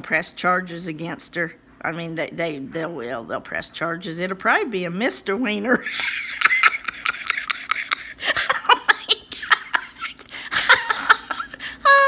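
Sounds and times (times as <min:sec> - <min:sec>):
woman laughing hard: 0:05.7 - 0:12.0.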